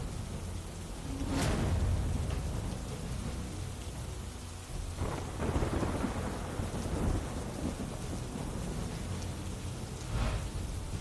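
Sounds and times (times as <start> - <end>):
heavy rain falling: 0.0 - 11.0
low rumbling thunder: 0.0 - 11.0.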